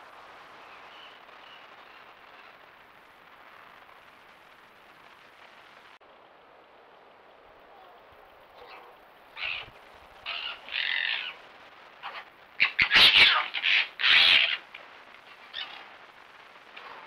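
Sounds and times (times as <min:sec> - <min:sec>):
foxes scuffling: 0:08.2 - 0:17.0
foxes giving harsh calls: 0:08.5 - 0:11.4, 0:12.0 - 0:16.1.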